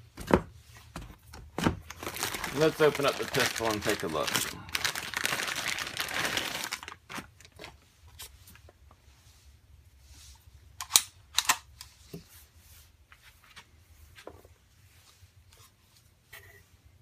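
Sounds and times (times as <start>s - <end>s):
plastic bag crinkling: 1.8s - 7.8s.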